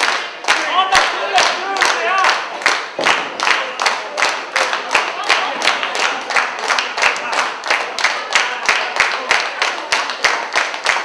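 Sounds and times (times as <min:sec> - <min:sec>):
crowd clapping in unison: 0:00.0 - 0:11.0.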